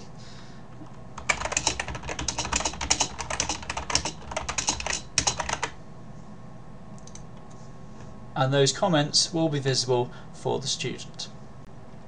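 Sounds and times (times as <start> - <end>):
keyboard typing: 0.8 - 5.8.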